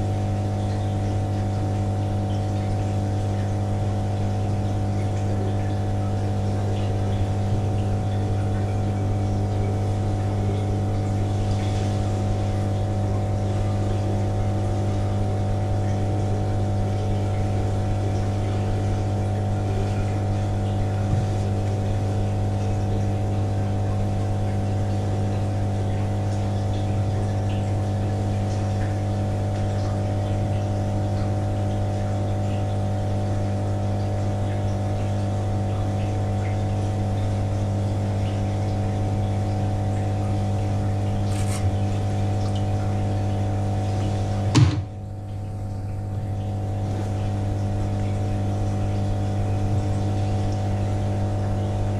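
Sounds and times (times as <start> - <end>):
faint water noise: 0.0 - 51.9
water pump humming: 0.0 - 51.9.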